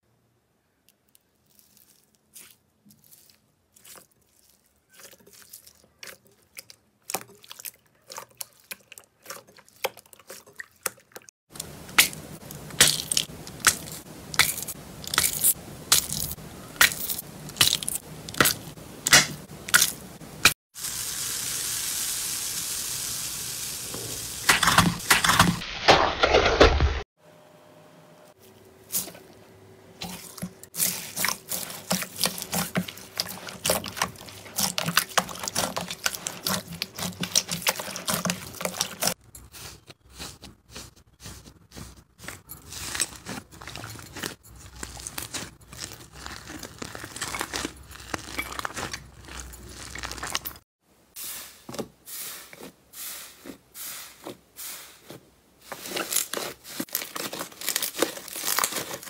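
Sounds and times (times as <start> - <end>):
slime squishing: 1.1 - 19.9, 30.0 - 50.6, 55.0 - 59.0.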